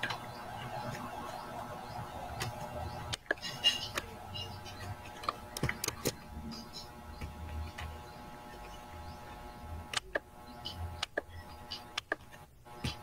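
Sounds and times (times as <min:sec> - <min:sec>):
low steady hum: 0:00.0 - 0:13.0
computer clicks: 0:05.2 - 0:06.2.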